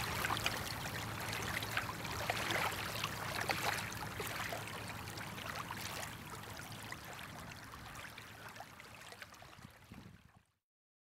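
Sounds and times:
river water lapping at bank: 0.0 - 10.5.

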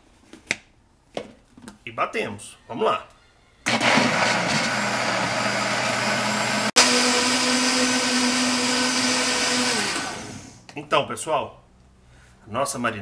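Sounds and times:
blender motor whining: 3.6 - 10.6.

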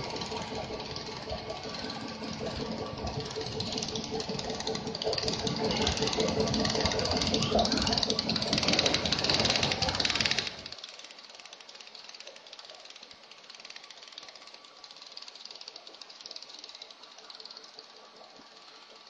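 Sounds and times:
cutting machine humming and rattling: 0.0 - 10.8.

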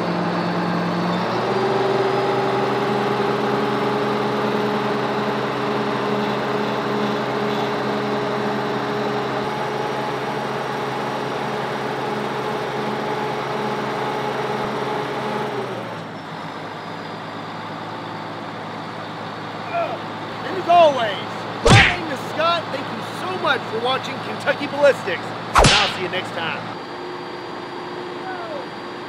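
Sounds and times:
truck engine running: 18.1 - 26.7.

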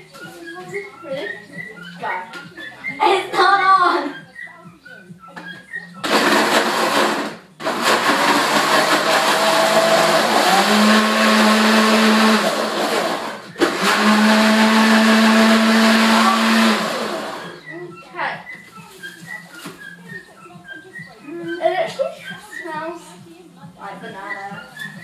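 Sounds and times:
blender running: 6.0 - 17.6.

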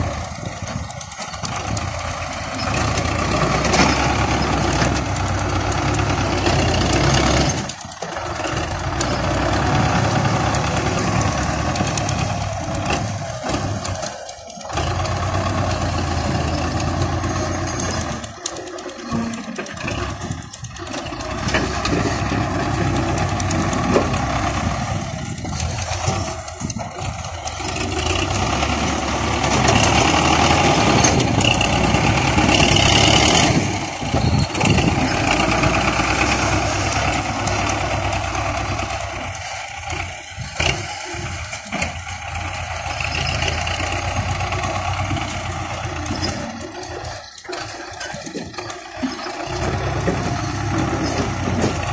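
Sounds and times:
tractor diesel engine under load: 0.0 - 51.9.

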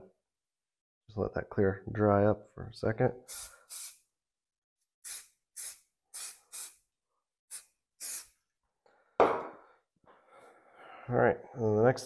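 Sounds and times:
aerosol can spraying: 3.3 - 4.1, 5.0 - 6.8, 7.5 - 8.4
loud knock: 9.2 - 9.6.

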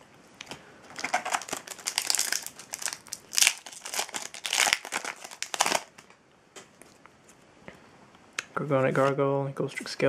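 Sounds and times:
foil wrapper crinkling: 0.9 - 6.1.

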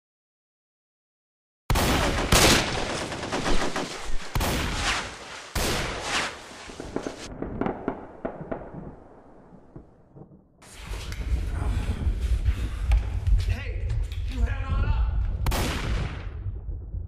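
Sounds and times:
rapid gunfire: 1.7 - 8.4.

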